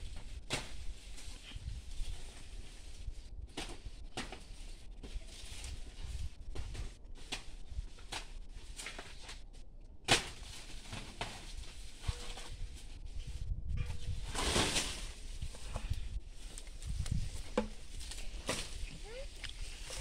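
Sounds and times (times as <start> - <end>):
dry leaves rustling and crackling: 14.0 - 20.0.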